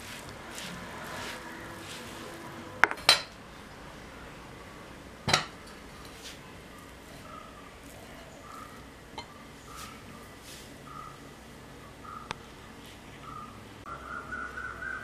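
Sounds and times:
spoon scraping and stirring: 0.0 - 3.4, 5.6 - 10.8.

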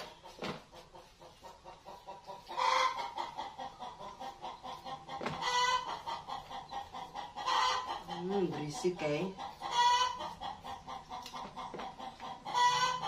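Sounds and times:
hen cackling: 1.8 - 8.4, 9.4 - 13.0.

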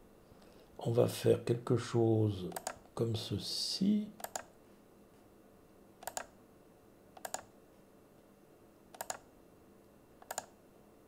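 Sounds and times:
computer mouse clicks: 2.5 - 2.9, 4.2 - 4.5, 6.0 - 6.4, 7.2 - 7.5, 8.9 - 9.3, 10.2 - 10.6.

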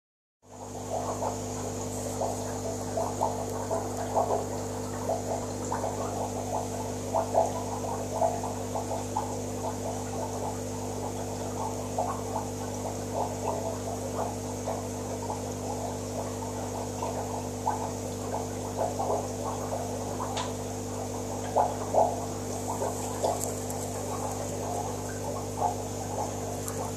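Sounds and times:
aquarium equipment humming: 0.4 - 26.9
water bubbling and gurgling: 0.5 - 26.9.

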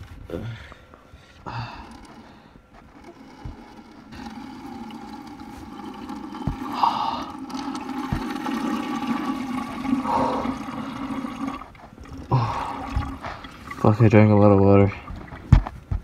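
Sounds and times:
soft bumps: 15.1 - 16.0.

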